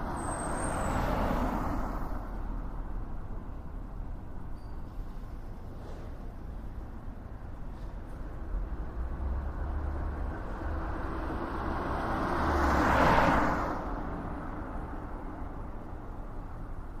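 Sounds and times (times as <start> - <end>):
vehicle passing: 9.0 - 14.1.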